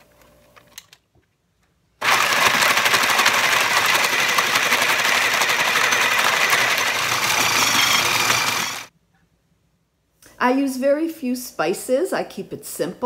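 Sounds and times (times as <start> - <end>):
food processor grinding: 2.0 - 8.9.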